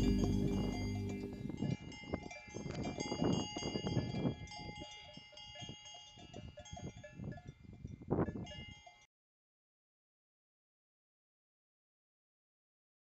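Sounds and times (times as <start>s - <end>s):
livestock bells clanking: 0.0s - 9.1s.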